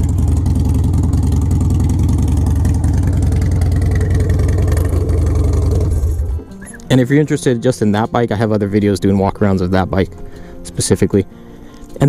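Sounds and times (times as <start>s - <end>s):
motorcycle engine idling: 0.0s - 6.7s.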